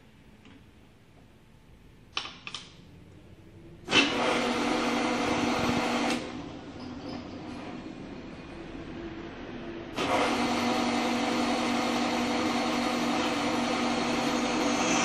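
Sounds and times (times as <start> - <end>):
machine motor running: 10.0 - 15.0.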